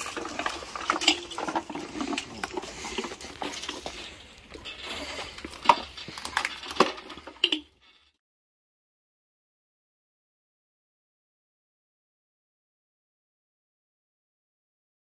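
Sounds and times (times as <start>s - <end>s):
tools and metal parts knocking: 0.0s - 7.8s.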